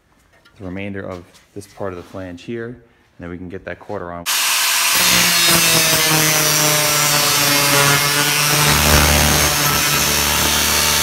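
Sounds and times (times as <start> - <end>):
angle grinder cutting steel: 4.3 - 11.0.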